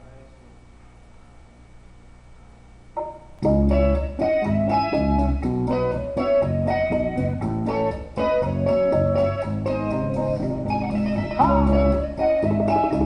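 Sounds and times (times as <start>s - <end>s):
faint hum: 0.0s - 13.0s
song with guitar bass and beat: 3.0s - 13.0s.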